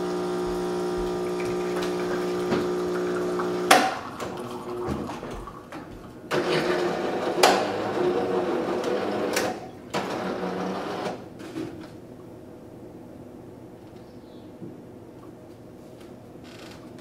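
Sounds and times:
espresso machine whirring: 0:00.0 - 0:04.8, 0:06.3 - 0:11.2.

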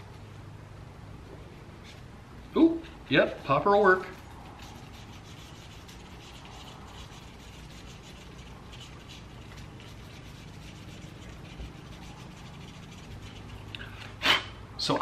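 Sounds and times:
scratching scratch-off card: 0:02.8 - 0:13.8.

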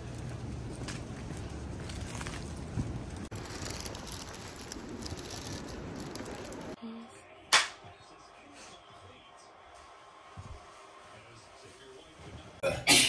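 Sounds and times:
plastic bag rustling: 0:01.9 - 0:06.8.

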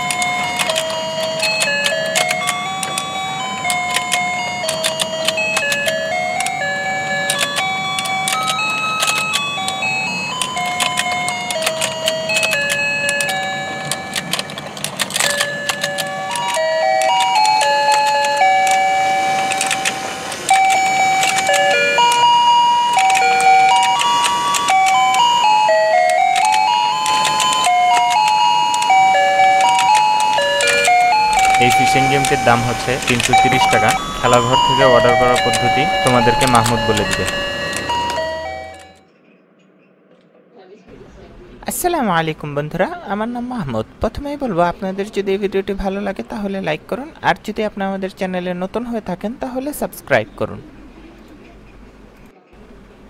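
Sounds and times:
beeping electronic melody: 0:00.0 - 0:39.1.

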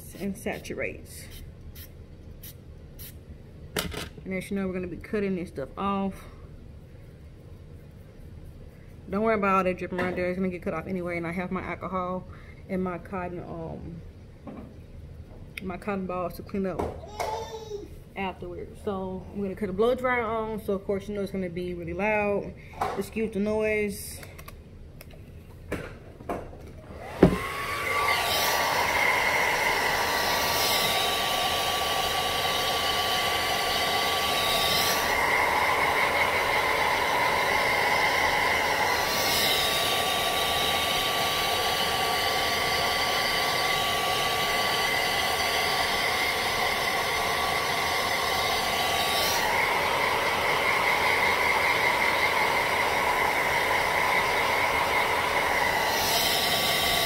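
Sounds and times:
hair dryer blowing: 0:26.8 - 0:57.0.

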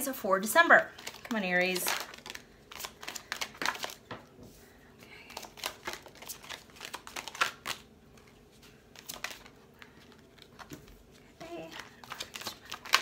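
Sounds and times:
cards being shuffled by hand: 0:00.9 - 0:04.2, 0:05.2 - 0:13.0.

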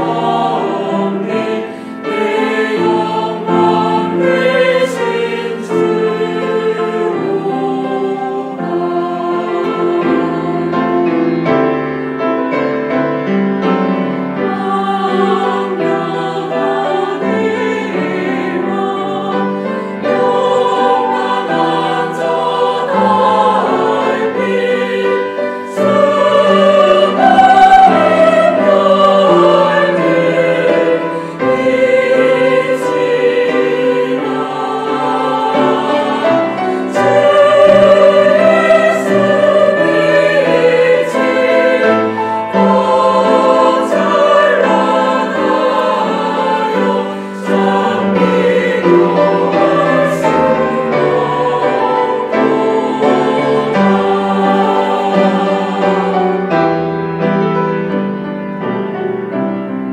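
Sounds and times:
choir singing a hymn: 0:00.0 - 0:59.9
piano: 0:00.0 - 0:59.9
strings: 0:00.0 - 0:59.9.

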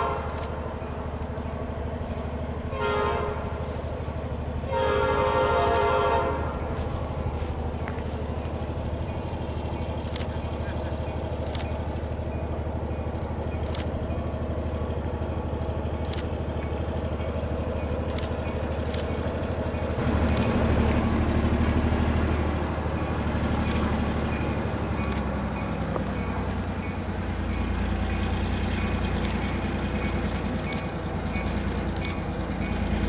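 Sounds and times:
locomotive diesel engine drone: 0:00.0 - 0:33.0
sharp clicks: 0:09.4 - 0:11.9, 0:13.1 - 0:14.1, 0:15.6 - 0:19.3, 0:19.9 - 0:21.5, 0:22.2 - 0:25.3, 0:28.4 - 0:31.0, 0:31.8 - 0:32.5.

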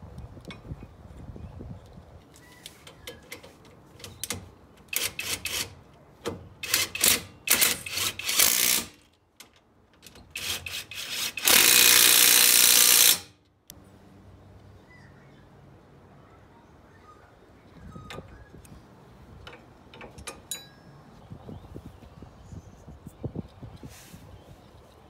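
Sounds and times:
impact driver bursts: 0:06.6 - 0:09.0, 0:10.3 - 0:13.3.

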